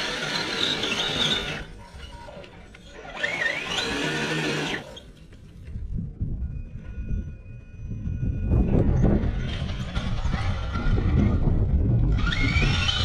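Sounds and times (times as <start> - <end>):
electric motor whining: 0.0 - 1.8, 2.7 - 5.1, 12.1 - 13.0
low rumble: 5.7 - 13.0
tyres scrabbling in loose dirt: 9.1 - 13.0.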